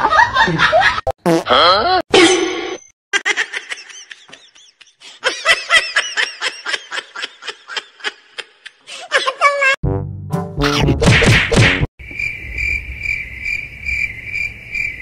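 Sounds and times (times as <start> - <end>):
person laughing: 3.2 - 9.8.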